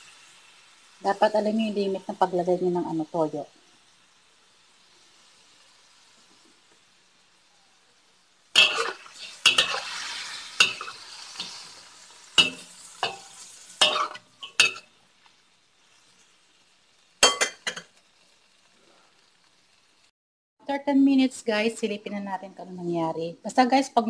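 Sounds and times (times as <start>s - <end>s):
food sizzling: 0.0s - 24.0s
spatula scraping in a wok: 8.6s - 16.5s.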